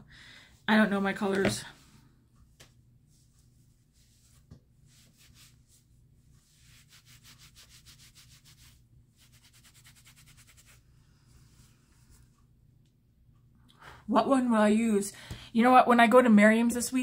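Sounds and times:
cloth rubbing against skin: 0:02.5 - 0:12.3.

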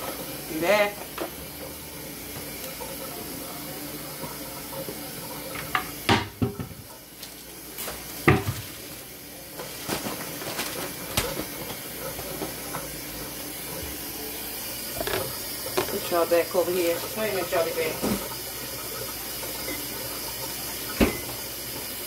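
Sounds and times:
kitchen knocks and rustles: 0:05.6 - 0:06.9, 0:07.8 - 0:08.9, 0:09.6 - 0:12.9, 0:20.9 - 0:21.4.

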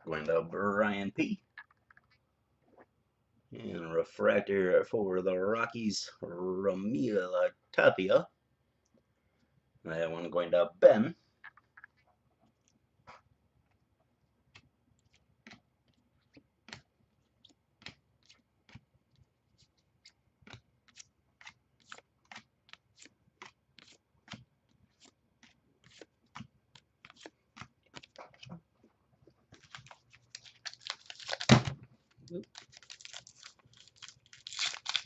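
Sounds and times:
foil wrapper crinkling: 0:29.5 - 0:35.0.

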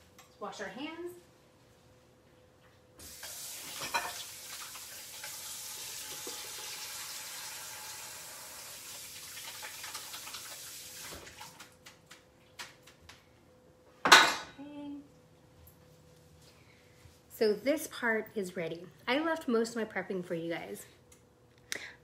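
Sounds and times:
faucet running: 0:03.0 - 0:11.6.

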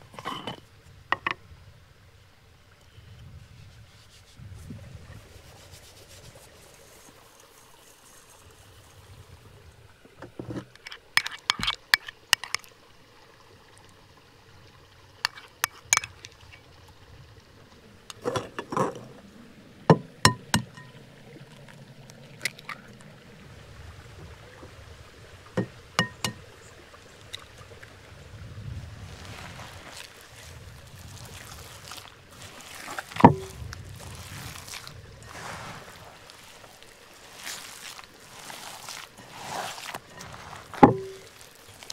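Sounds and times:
cookware knocking and clinking: 0:25.6 - 0:26.4.

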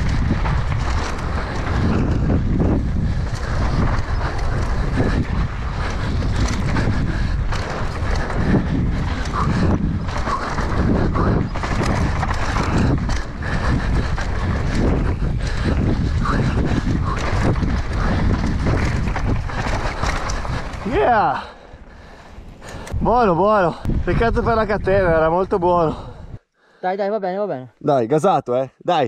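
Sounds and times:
bike knocking and rattling: 0:00.0 - 0:23.0
wind rushing over microphone: 0:00.0 - 0:26.4.

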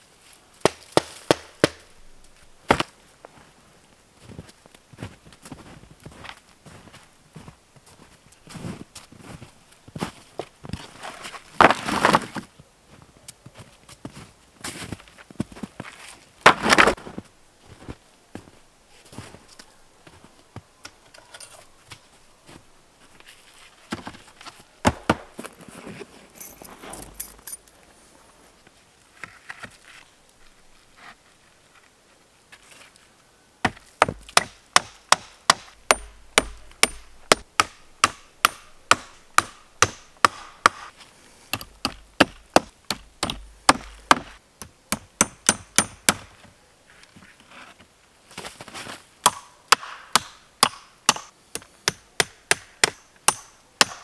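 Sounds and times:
hammer striking nails into wood: 0:00.7 - 0:01.9, 0:34.0 - 0:40.9, 0:41.6 - 0:44.3, 0:44.9 - 0:46.3, 0:49.2 - 0:54.0.

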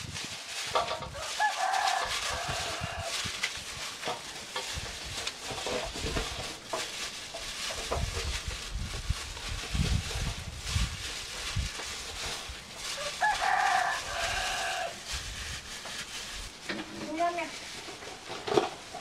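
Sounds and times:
chicken calling: 0:13.0 - 0:15.0.

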